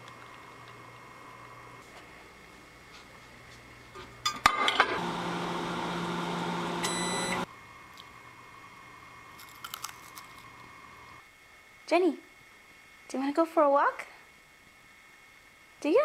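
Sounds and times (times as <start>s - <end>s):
microwave oven humming: 0.0s - 9.4s.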